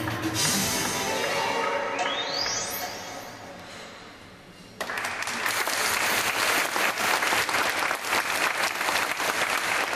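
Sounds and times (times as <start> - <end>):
audience applause: 4.8 - 9.9.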